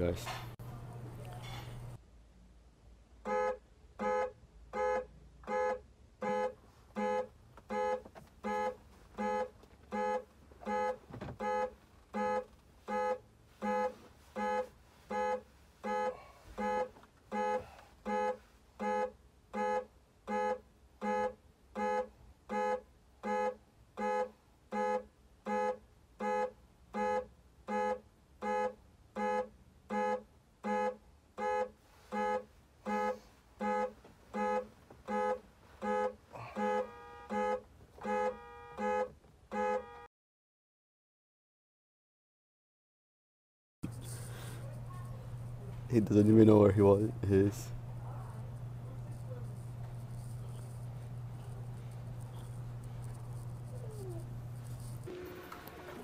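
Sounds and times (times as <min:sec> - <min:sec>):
car horn honking: 0:03.2 - 0:40.1.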